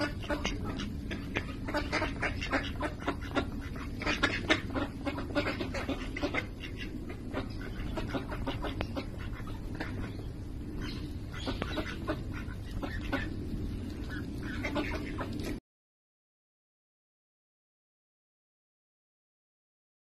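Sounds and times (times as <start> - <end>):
ducks quacking: 0.0 - 15.6.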